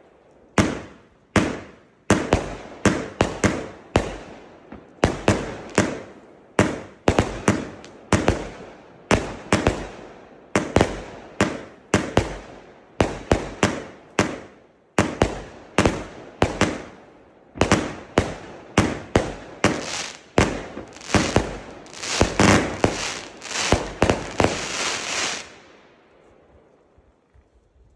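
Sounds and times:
fireworks bursting: 5.0s - 10.0s, 13.0s - 17.0s, 17.6s - 25.8s.

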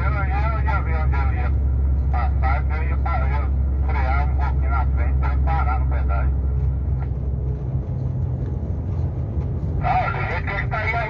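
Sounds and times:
road noise: 0.0s - 11.0s
truck engine drone: 0.0s - 11.0s
person talking: 9.8s - 11.0s.

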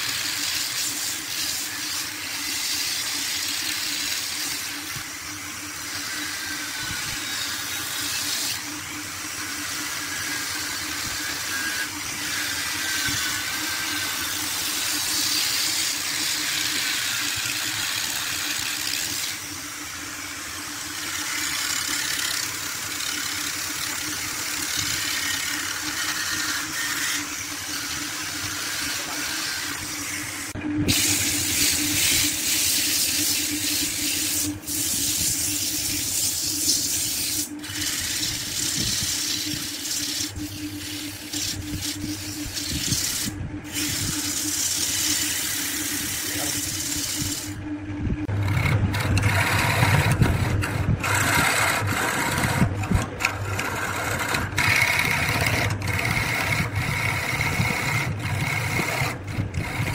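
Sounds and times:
sanding disc hissing on wood: 0.0s - 47.6s
motors humming: 0.0s - 59.9s.

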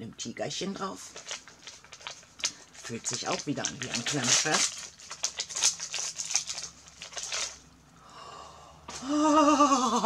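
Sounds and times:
gift wrapping crinkling and tearing: 1.0s - 7.6s.

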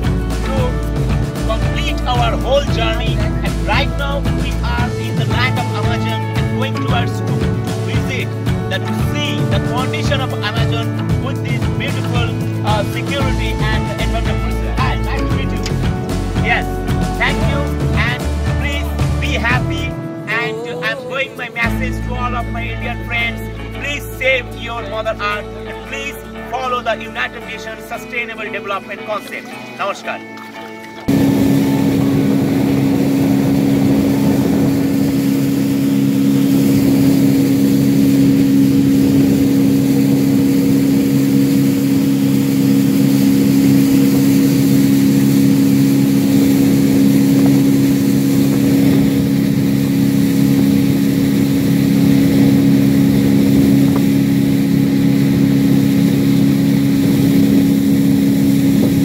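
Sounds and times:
boat motor droning: 0.0s - 59.0s
water and wind hiss: 29.2s - 59.0s.

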